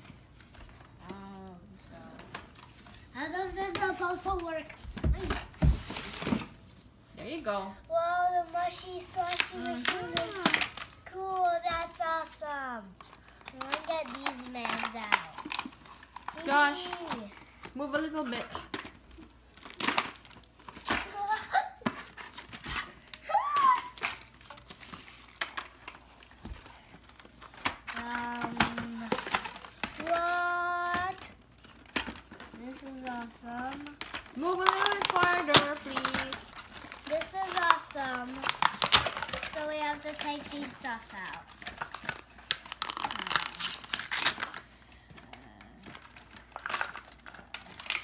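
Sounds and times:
cardboard packaging clicks and taps: 0:23.5 - 0:44.6.

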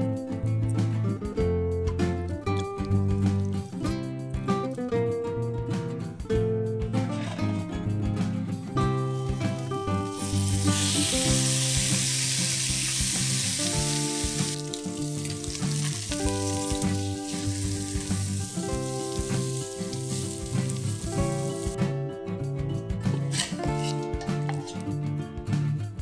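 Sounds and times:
meat sizzling in a frying pan: 0:10.1 - 0:21.8.

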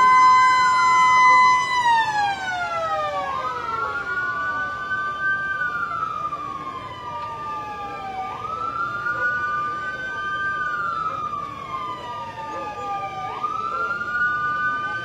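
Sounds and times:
ambulance siren wailing: 0:00.0 - 0:15.0
steady held siren tone: 0:00.0 - 0:15.0.

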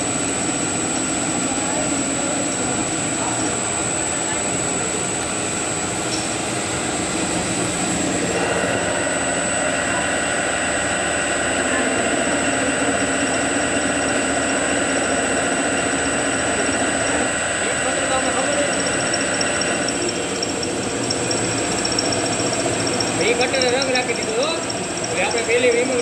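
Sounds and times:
machine tools cutting metal: 0:08.2 - 0:26.0
steady high tones: 0:08.3 - 0:26.0.

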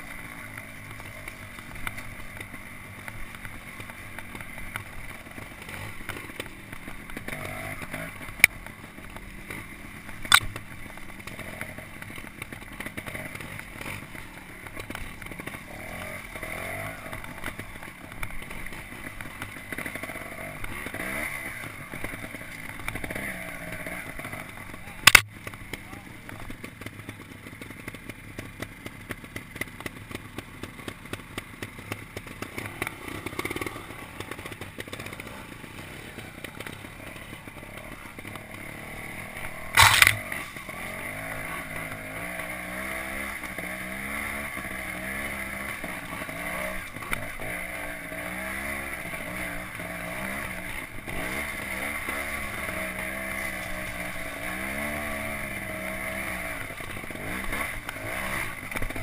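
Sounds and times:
motorcycle engine revving: 0:00.0 - 0:59.0
bike knocks and rattles: 0:22.2 - 0:37.2, 0:38.2 - 0:41.3.

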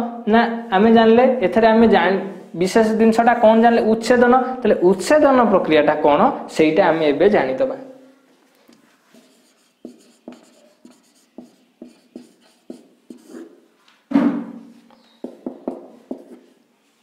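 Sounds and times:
marker pen on whiteboard: 0:08.4 - 0:16.6.

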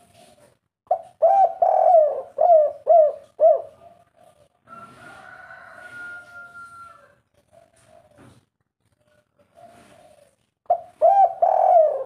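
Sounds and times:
dove cooing: 0:00.9 - 0:05.2, 0:07.4 - 0:08.4, 0:09.4 - 0:12.0.

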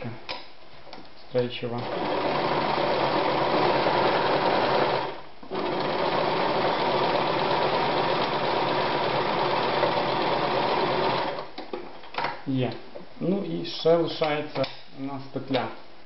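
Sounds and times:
electric sewing machine running: 0:01.8 - 0:11.5.

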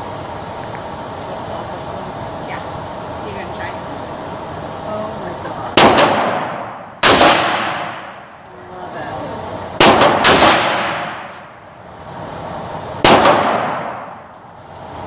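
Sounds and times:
rifle shots echoing indoors: 0:05.7 - 0:08.2, 0:09.8 - 0:11.4, 0:13.0 - 0:14.2.

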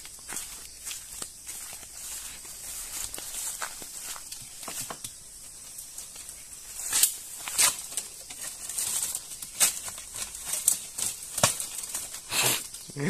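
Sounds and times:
bamboo twigs and leaves rustling: 0:00.0 - 0:13.0
twigs snapping: 0:03.0 - 0:12.9.

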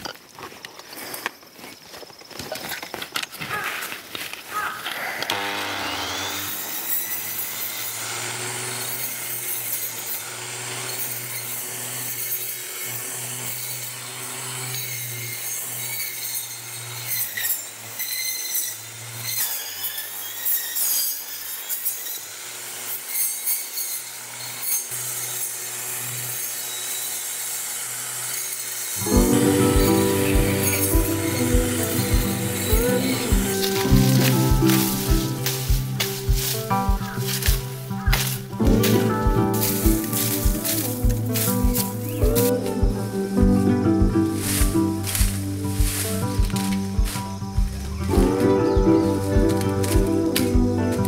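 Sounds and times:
rasping sawing strokes: 0:05.3 - 0:43.3.

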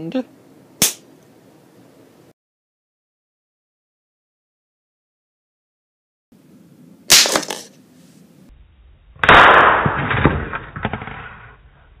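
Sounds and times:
explosions: 0:09.2 - 0:11.4.

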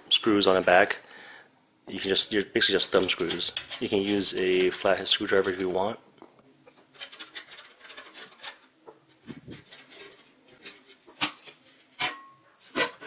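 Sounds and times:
metal screws clicking and scraping: 0:02.8 - 0:05.6, 0:06.8 - 0:08.7.

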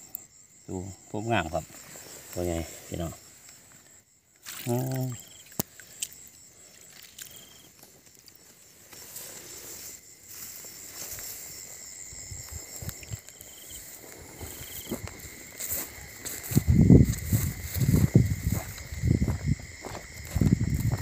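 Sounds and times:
insect trills: 0:00.0 - 0:21.0
night insects chirring: 0:00.0 - 0:21.0
footsteps through wet grass: 0:04.4 - 0:21.0.

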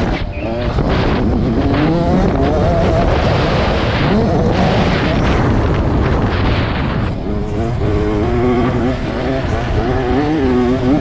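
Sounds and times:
motocross bike engine revving: 0:00.0 - 0:11.0
wind rumble on microphone: 0:00.0 - 0:11.0.

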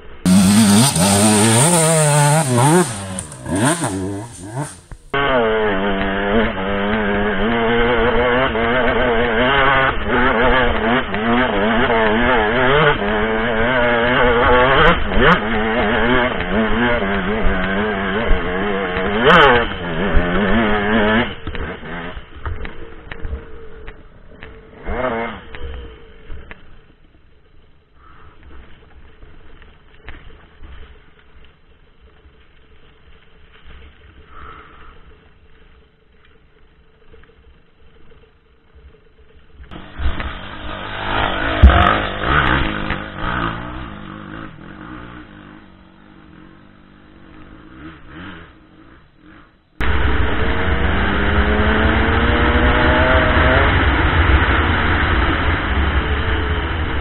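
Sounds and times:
dirt bike engine revving: 0:00.2 - 0:26.8, 0:39.7 - 0:57.0.

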